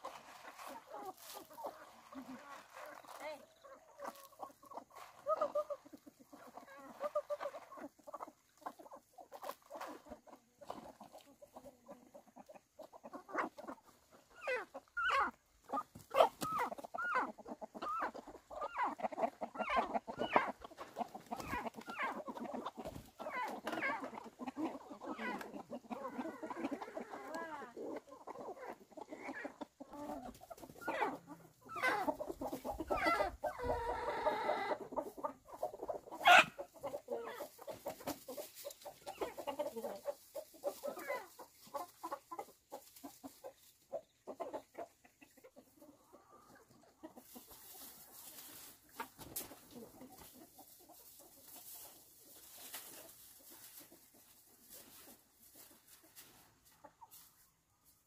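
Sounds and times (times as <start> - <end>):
chickens clucking: 0.0 - 58.0.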